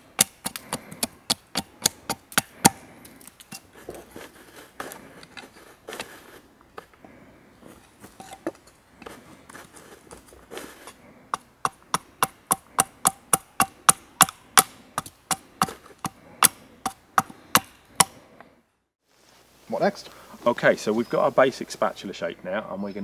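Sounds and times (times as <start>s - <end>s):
axe chopping wood: 0.0s - 2.8s, 11.4s - 18.2s.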